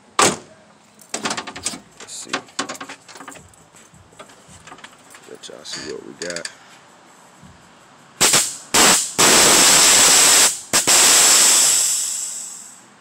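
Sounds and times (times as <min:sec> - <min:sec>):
valve hissing bursts: 0:08.2 - 0:12.8.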